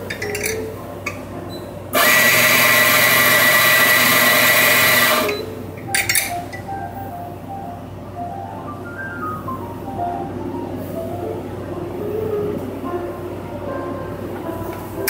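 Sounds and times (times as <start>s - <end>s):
soft background music: 0.0s - 15.0s
coffee grinder grinding: 2.0s - 5.4s.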